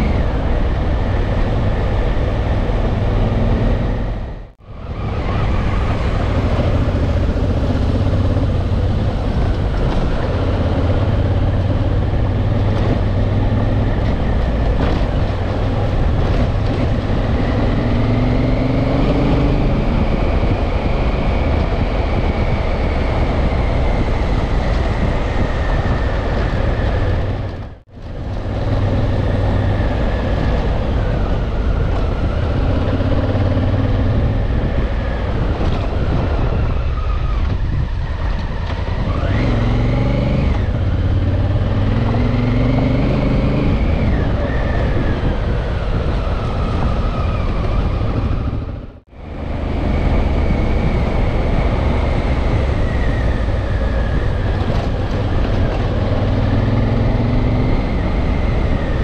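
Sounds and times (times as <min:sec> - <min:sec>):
wind noise: 0:00.0 - 0:59.0
motorcycle engine running: 0:05.2 - 0:36.6.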